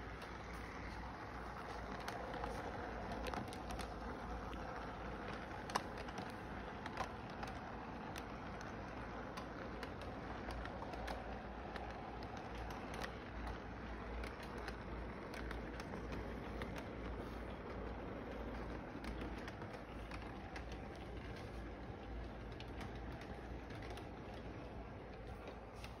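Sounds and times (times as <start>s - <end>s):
toy train running on track: 0.0s - 26.0s.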